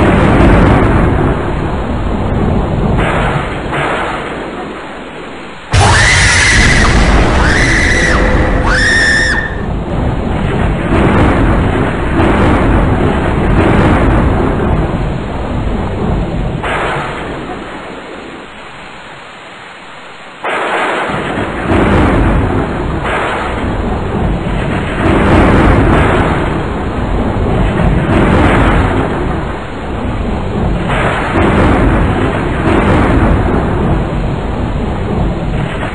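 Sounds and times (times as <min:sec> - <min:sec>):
thunderclap: 0:00.0 - 0:18.4, 0:20.4 - 0:35.9
thunder rumble: 0:00.0 - 0:18.7, 0:21.0 - 0:35.9
rain: 0:00.0 - 0:35.9
high shrieks: 0:05.7 - 0:09.7.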